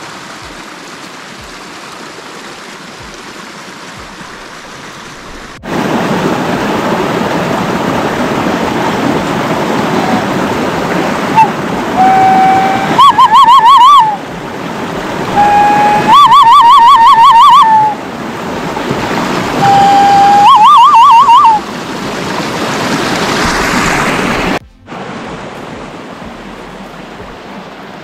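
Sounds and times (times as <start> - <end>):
cupped-hand whistle warbling: 11.4 - 14.2, 15.4 - 18.0, 19.6 - 21.6.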